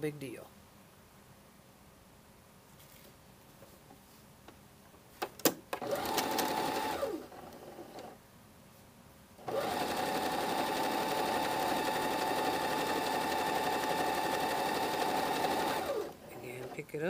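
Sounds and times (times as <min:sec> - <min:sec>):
sewing machine stitching: 0:05.8 - 0:08.2, 0:09.4 - 0:16.9.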